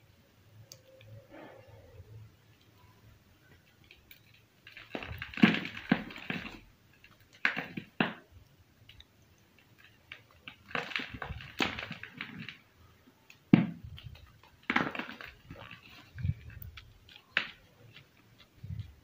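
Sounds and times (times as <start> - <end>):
chalk snapping cracks: 13.3 - 19.0.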